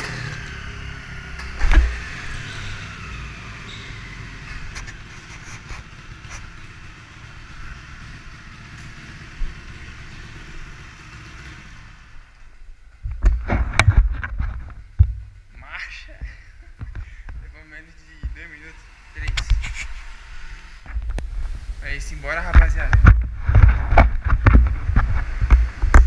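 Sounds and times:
motorcycle engine idling: 0.0s - 13.8s, 14.6s - 20.8s
loud thumps: 13.0s - 15.5s, 22.4s - 26.0s.

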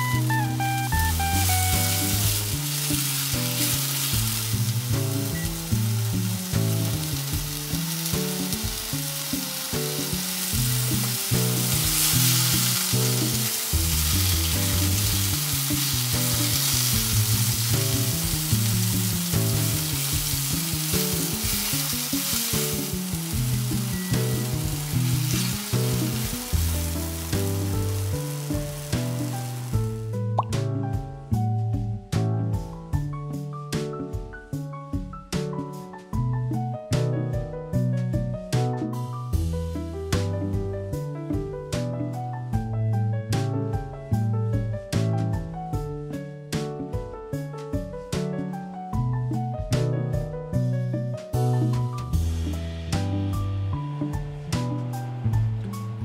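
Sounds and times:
mushrooms sizzling in a frying pan: 0.0s - 30.2s
background music with bass line: 0.0s - 56.0s
utensil stirring in a pan: 7.1s - 29.7s.

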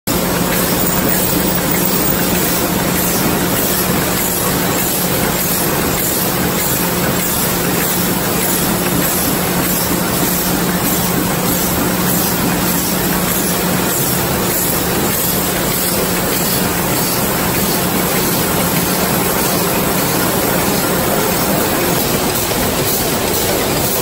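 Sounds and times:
machine clattering: 0.1s - 24.0s.

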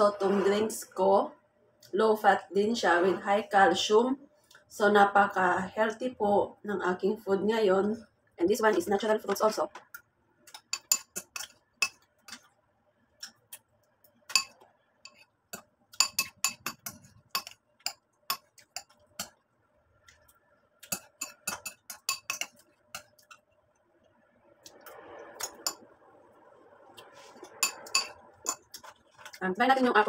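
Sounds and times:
spoon clinking against ceramic bowl: 10.6s - 12.0s, 14.3s - 19.3s, 20.9s - 23.4s, 25.4s - 25.8s, 27.6s - 28.9s.

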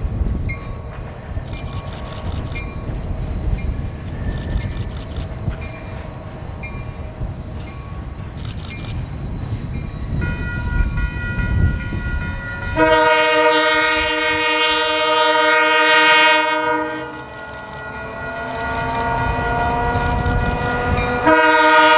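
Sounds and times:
diesel locomotive rumbling: 0.0s - 21.9s
locomotive air horn: 11.6s - 20.0s, 20.8s - 21.9s.

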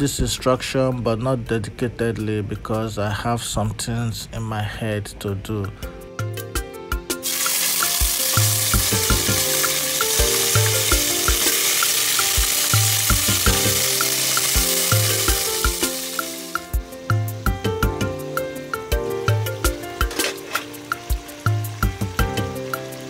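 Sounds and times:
background music with beat: 5.8s - 23.0s
tomato paste sizzling in oil: 7.2s - 23.0s.

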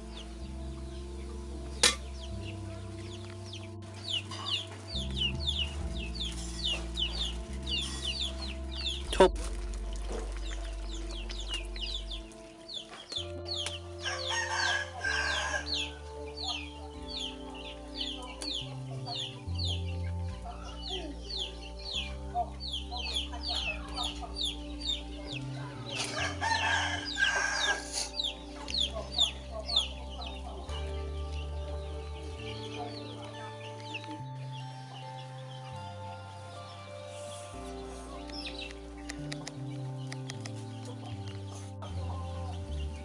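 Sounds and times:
background music with bass line: 0.0s - 43.0s
chicks peeping: 0.0s - 43.0s
rooster crowing: 14.0s - 16.0s, 26.1s - 27.9s.

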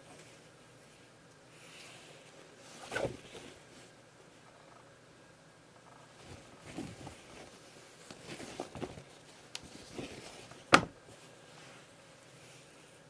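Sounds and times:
fabric rustling: 6.1s - 13.0s.

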